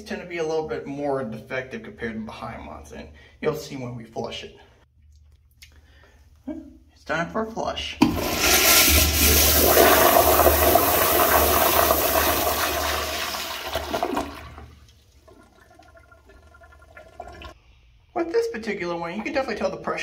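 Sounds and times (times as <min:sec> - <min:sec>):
toilet flushing: 0:08.0 - 0:17.6
water trickling: 0:13.7 - 0:17.6.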